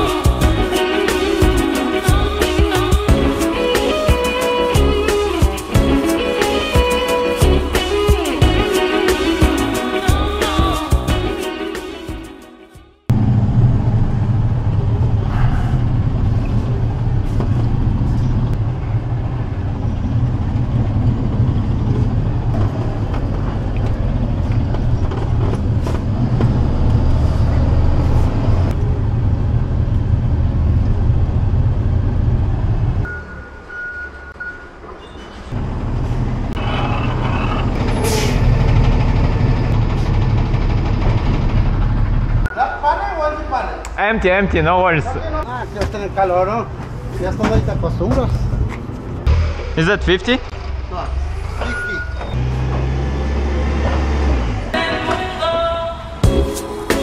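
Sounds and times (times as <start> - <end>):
truck engine and road rumble: 13.1 - 56.4.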